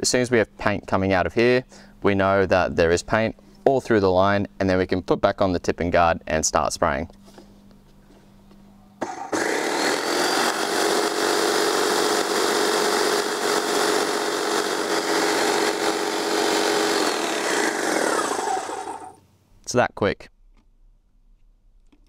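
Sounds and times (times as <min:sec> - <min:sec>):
paint sprayer pump running: 0:09.0 - 0:19.2.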